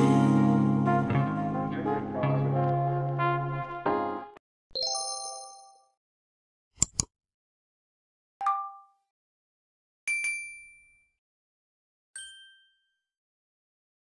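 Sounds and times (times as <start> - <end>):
ringing ding sound effects: 10.1 - 11.1, 12.2 - 13.1.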